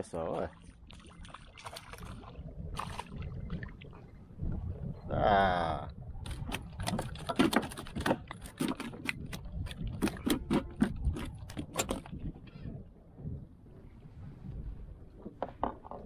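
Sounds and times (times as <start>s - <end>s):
fish slapping on plastic kayak: 0.6s - 4.0s, 6.2s - 12.4s.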